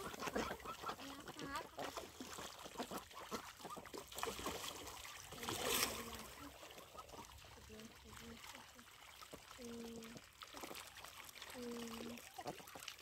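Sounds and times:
ducks calling: 0.0s - 1.9s
ducks splashing in water: 0.0s - 13.0s
stream trickling: 0.0s - 13.0s.

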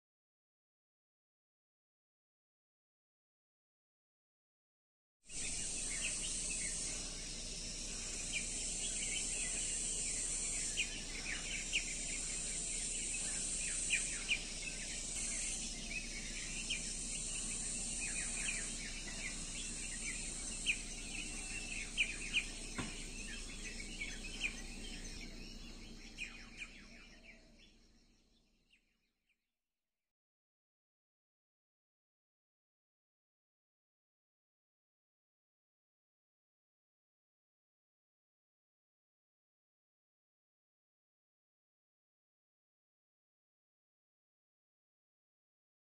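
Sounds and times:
high insect hiss: 5.3s - 28.7s
small birds chirping: 5.3s - 29.1s.

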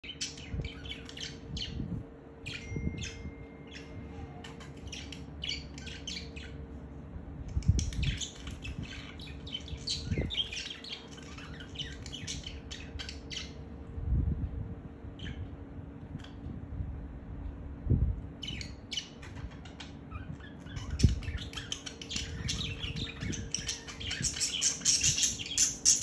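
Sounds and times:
steady low hum: 0.0s - 26.0s
budgerigars chattering: 7.7s - 13.6s, 18.4s - 26.0s.

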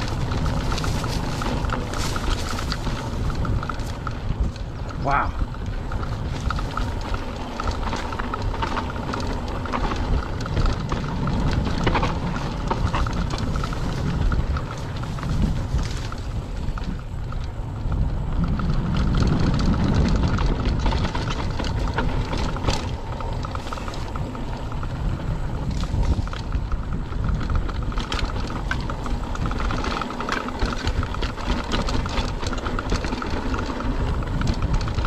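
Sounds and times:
grass brushing past: 0.0s - 4.0s
bike rattling over bumps: 0.0s - 35.0s
tyres crunching on dirt: 0.0s - 35.0s
wind rumbling on microphone: 0.0s - 35.0s.

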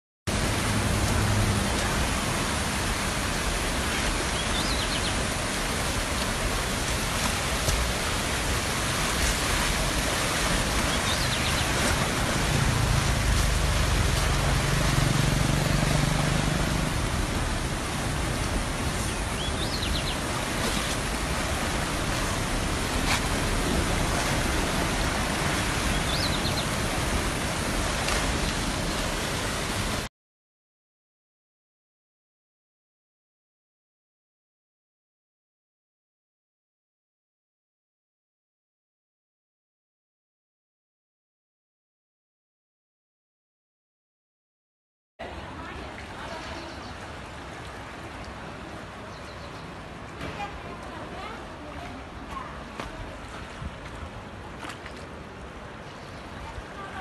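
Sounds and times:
floodwater rushing: 0.3s - 30.1s, 45.2s - 57.0s.

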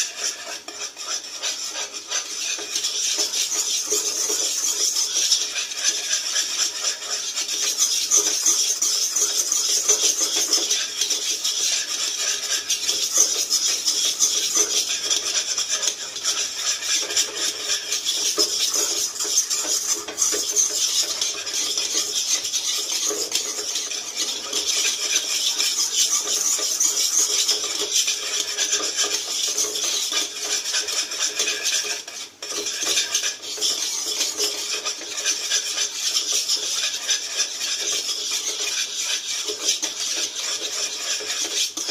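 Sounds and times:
spatula scraping a pan: 0.0s - 41.9s.

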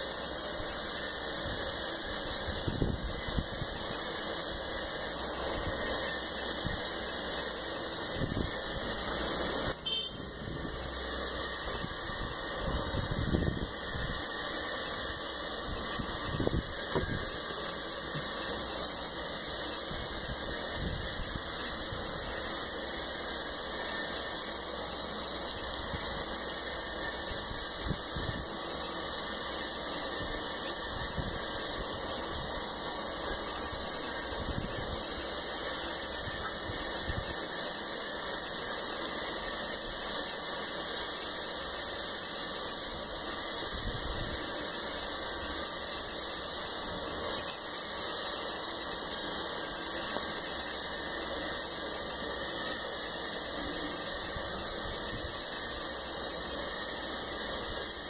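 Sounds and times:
steady hiss: 0.0s - 58.0s.

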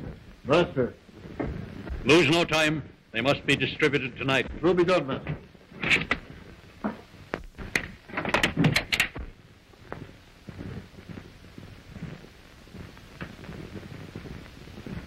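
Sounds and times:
wood and metal clicks and knocks: 6.8s - 9.3s.

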